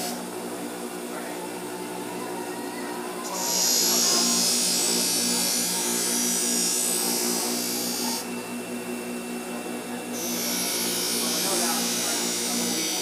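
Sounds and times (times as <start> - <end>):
bench grinder motor hum: 0.0 - 0.7, 1.5 - 13.0.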